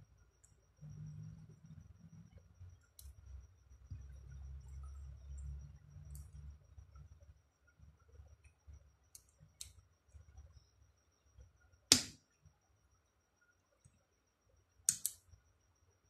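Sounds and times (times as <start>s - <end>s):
metal clicks and snaps: 14.9s - 15.2s.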